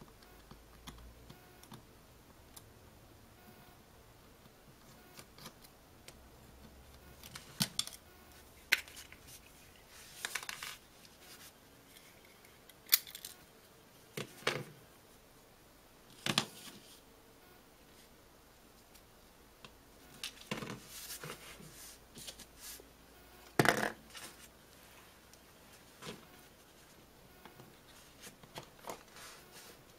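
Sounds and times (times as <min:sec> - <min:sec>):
plastic parts clicking and scraping: 0:10.1 - 0:10.8.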